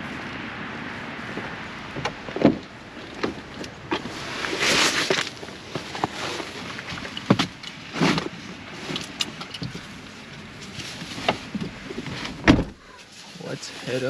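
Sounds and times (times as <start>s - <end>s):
outdoor noise: 0.0s - 14.0s
knocks and rustling in truck: 1.3s - 13.2s
truck door shutting: 12.3s - 12.8s.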